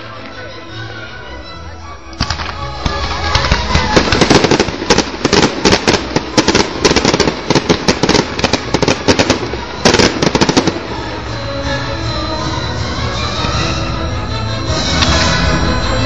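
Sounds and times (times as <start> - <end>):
fireworks banging and crackling: 2.2 - 12.4.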